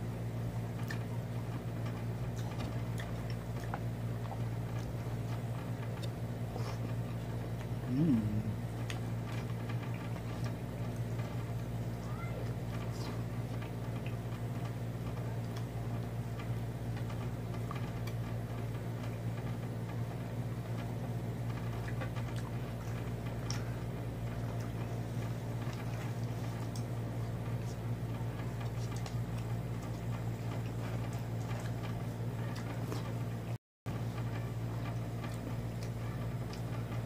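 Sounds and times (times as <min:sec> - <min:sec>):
steady low hum: 0:00.0 - 0:37.0
clicks and taps of eating: 0:12.4 - 0:15.8.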